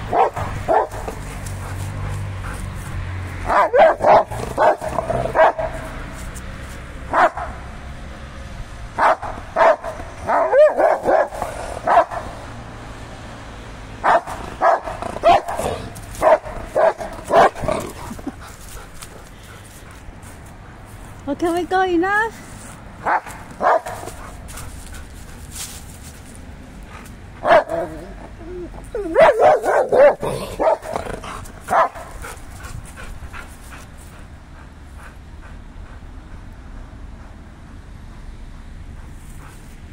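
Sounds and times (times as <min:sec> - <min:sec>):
dog barking: 0:00.0 - 0:01.8, 0:03.4 - 0:05.9, 0:07.1 - 0:07.6, 0:09.0 - 0:12.4, 0:14.0 - 0:17.6, 0:23.0 - 0:24.2, 0:27.4 - 0:28.1, 0:29.0 - 0:31.0, 0:31.7 - 0:32.2
dog yelping: 0:03.5 - 0:05.7, 0:09.0 - 0:11.3, 0:14.0 - 0:17.6, 0:27.4 - 0:30.9.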